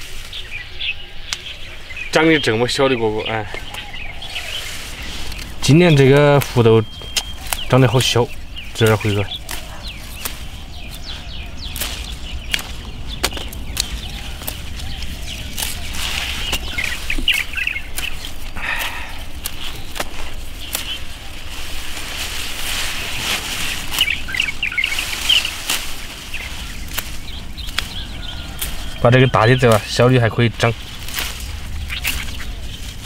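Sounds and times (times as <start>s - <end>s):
leaves rustling: 0.0s - 33.0s
small birds chirping: 0.0s - 33.0s
pods snapping: 8.8s - 21.0s.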